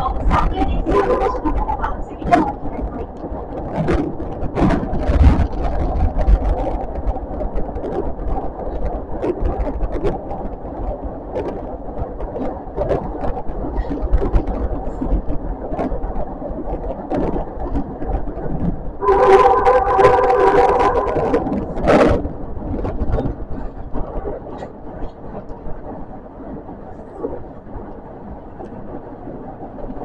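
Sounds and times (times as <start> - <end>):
train rumble: 0.0 - 30.0
wheels clicking on rails: 0.0 - 30.0.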